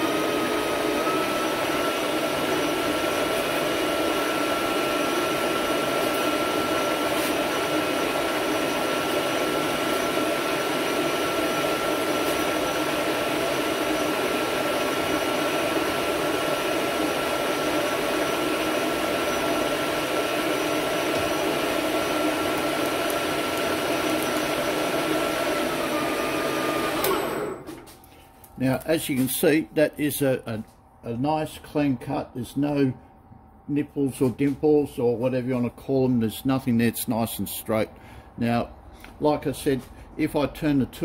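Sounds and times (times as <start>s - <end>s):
metal lathe humming and whining: 0.0s - 27.7s.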